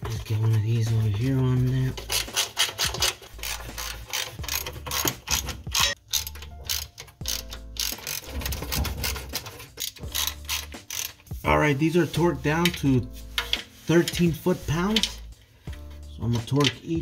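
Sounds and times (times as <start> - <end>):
hand ratchet clicking: 1.9 - 11.4, 12.6 - 15.3.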